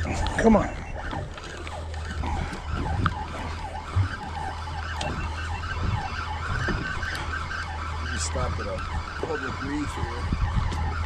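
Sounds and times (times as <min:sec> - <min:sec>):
boat engine drone: 0:00.0 - 0:11.0
fishing reel gears whirring: 0:00.0 - 0:11.0.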